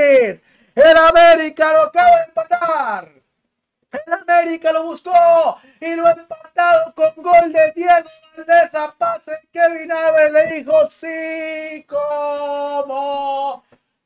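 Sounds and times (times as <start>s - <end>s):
man singing loudly: 6.0s - 13.6s.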